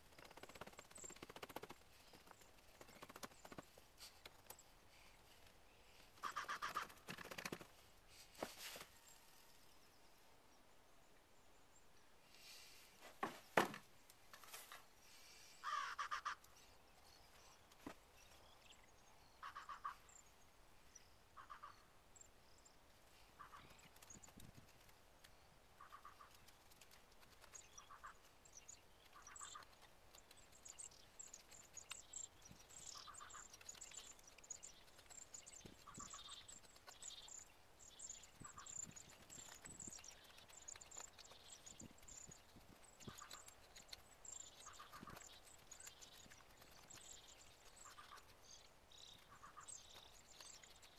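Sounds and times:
bird calling: 29.0s - 29.9s, 30.6s - 42.4s, 43.0s - 50.8s.

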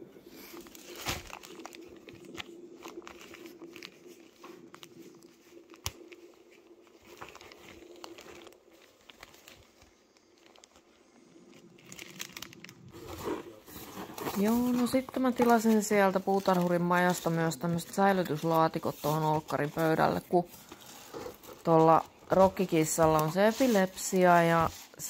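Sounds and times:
faint steady hum: 0.0s - 25.0s
fabric rubbing against microphone: 12.9s - 25.0s.

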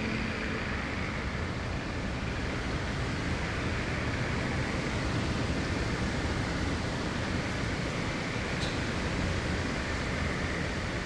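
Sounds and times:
strong wind: 0.0s - 11.0s.

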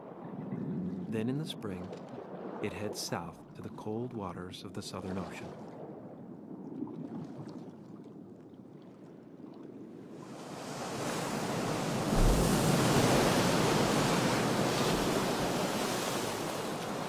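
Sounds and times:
surf breaking over rocks: 10.6s - 17.0s.

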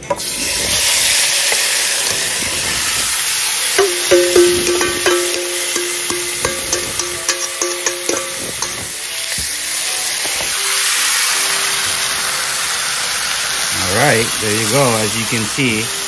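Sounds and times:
meat sizzling in a pan: 0.0s - 16.0s
tongs clinking on metal: 3.8s - 9.0s.

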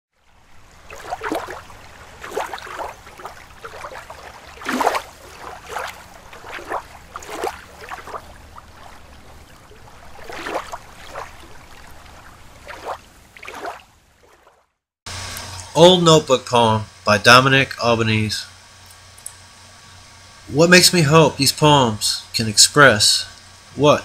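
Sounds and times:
water lapping and splashing: 0.1s - 14.8s
low steady rumble: 0.2s - 13.4s.

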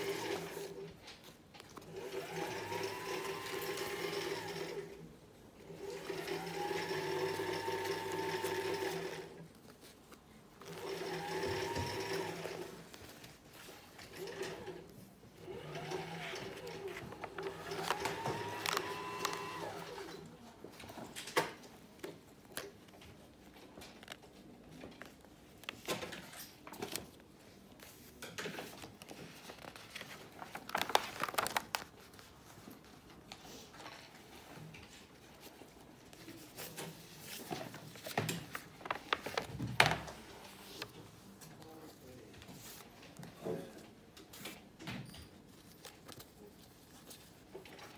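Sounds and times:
sketchbook pages turning: 16.5s - 19.9s, 22.2s - 43.2s.

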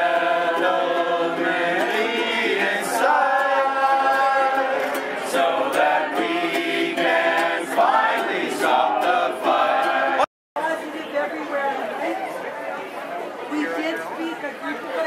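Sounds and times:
strummed guitar: 0.0s - 10.2s
group singing a carol: 0.0s - 10.3s.

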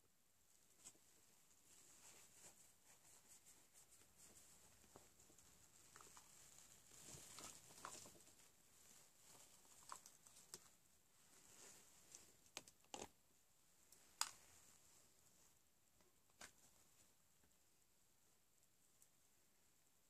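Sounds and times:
hands rustling clothing: 0.5s - 12.6s.

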